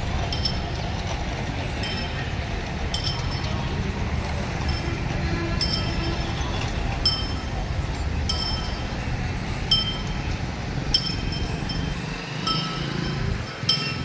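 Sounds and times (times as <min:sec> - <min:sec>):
low street rumble: 0:00.0 - 0:14.0
metal bells clinking: 0:00.0 - 0:14.0.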